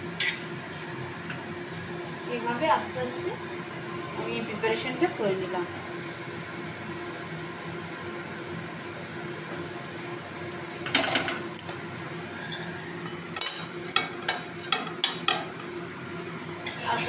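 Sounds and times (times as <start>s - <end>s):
metal utensil scraping pan: 16.6s - 17.0s.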